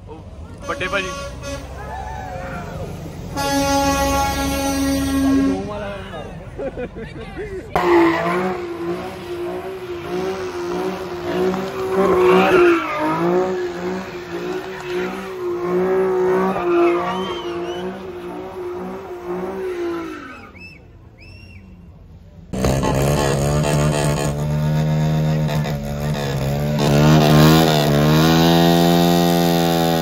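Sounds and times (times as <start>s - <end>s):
car engine revving: 7.7s - 20.8s, 22.4s - 30.0s
tyres squealing: 7.7s - 21.8s.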